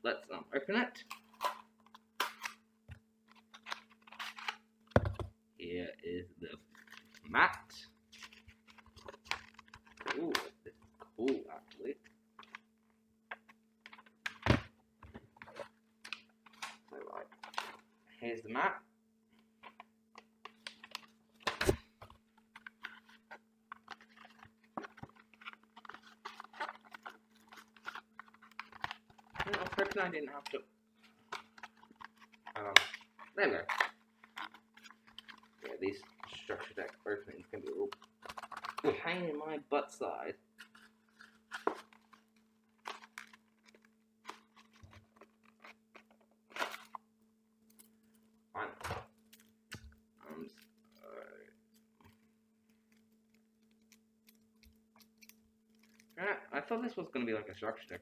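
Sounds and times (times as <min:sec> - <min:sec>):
faint electrical hum: 0:00.0 - 0:58.0
cardboard packaging rustling and crinkling: 0:20.4 - 0:39.0.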